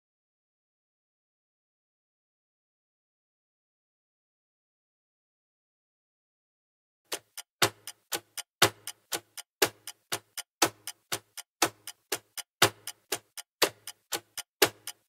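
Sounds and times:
clock ticking: 7.1 - 15.0.

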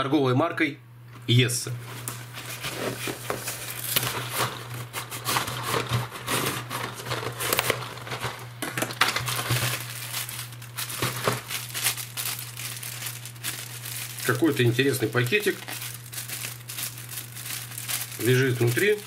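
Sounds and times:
cardboard scraping: 1.8 - 10.0
plastic packing bag crinkling: 1.9 - 19.0.

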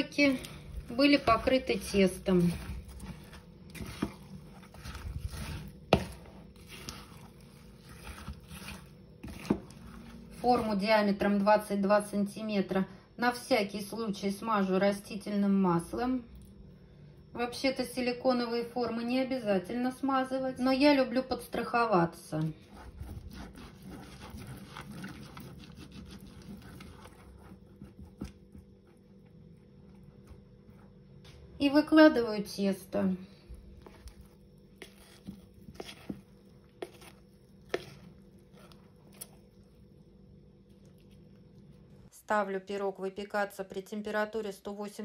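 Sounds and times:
pastry brush brushing: 0.0 - 11.0, 22.5 - 29.0, 33.8 - 39.5
spoon stirring thick batter: 0.0 - 12.2, 20.6 - 31.8, 32.9 - 42.1.

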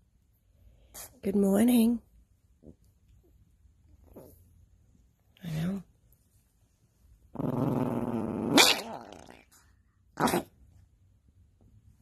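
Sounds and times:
dog growling: 7.3 - 9.6.

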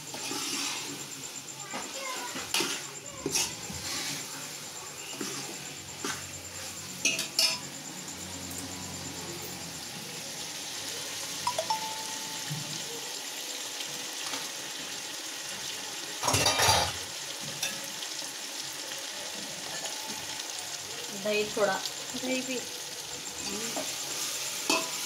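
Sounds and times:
food sizzling in a pot: 0.0 - 25.0
spoon stirring and clinking on pot: 24.7 - 25.0.

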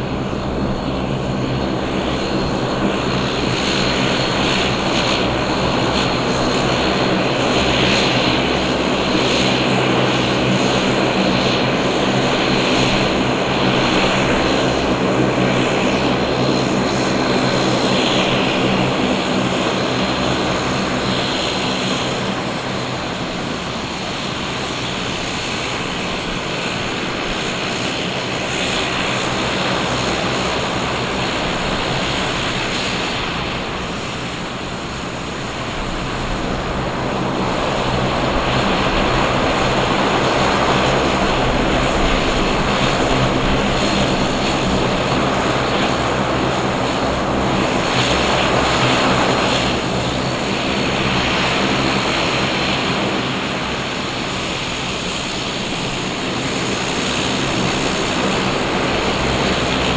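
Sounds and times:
turboprop engines running: 0.0 - 59.9.

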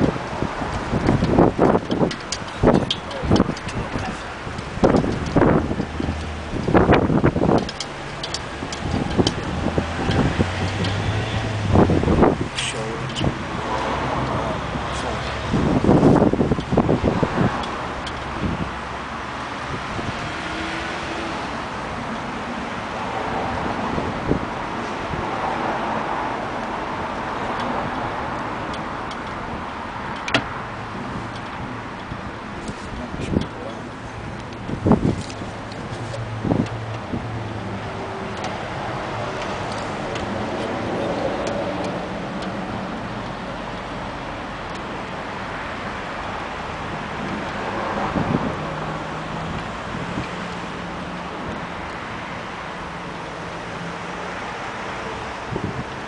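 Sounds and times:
outdoor rumble and hiss: 0.0 - 56.0.

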